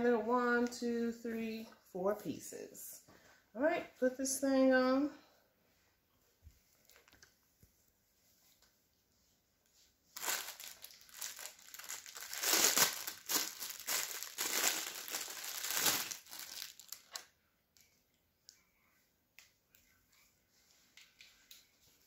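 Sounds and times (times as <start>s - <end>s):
cloak fabric rustling: 10.1s - 17.0s.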